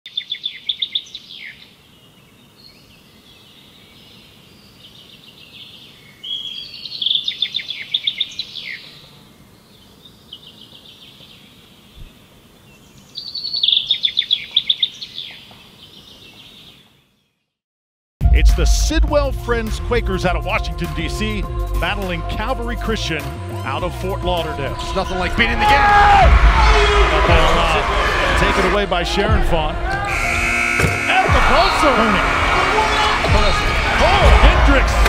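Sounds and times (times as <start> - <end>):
songbird singing trills: 0.1 - 17.4
faint outdoor background: 0.1 - 17.6.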